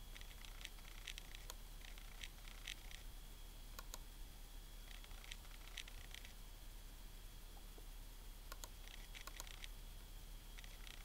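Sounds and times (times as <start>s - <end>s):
faint high whine: 0.0s - 11.0s
laptop clicking: 0.1s - 3.0s, 8.5s - 9.7s.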